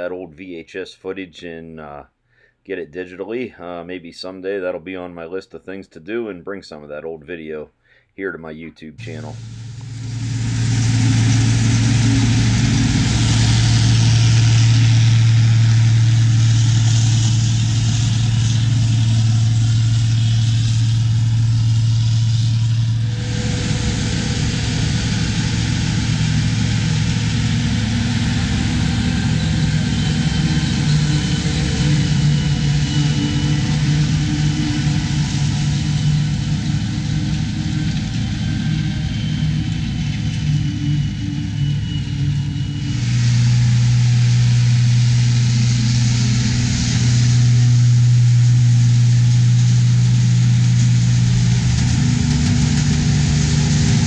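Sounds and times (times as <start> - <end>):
faint high whine: 8.9 - 54.0
tractor engine: 9.0 - 54.0
forage harvester chopping corn: 50.7 - 54.0.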